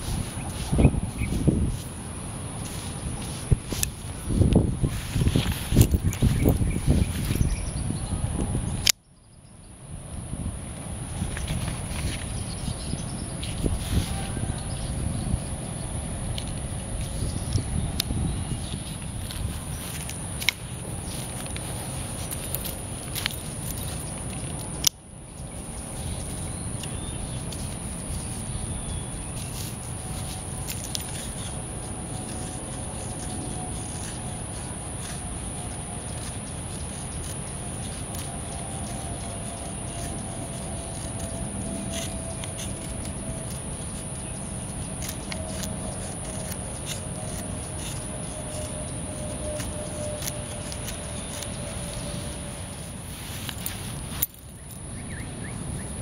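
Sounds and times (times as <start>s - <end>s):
knife scraping wooden stick: 25.9s - 54.6s.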